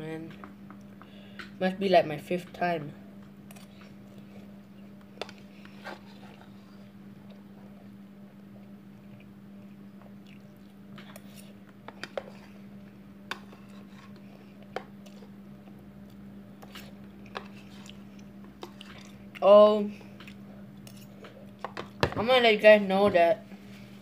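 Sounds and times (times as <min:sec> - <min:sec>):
steady low hum: 0:00.0 - 0:24.0
faint chewing: 0:03.5 - 0:22.0.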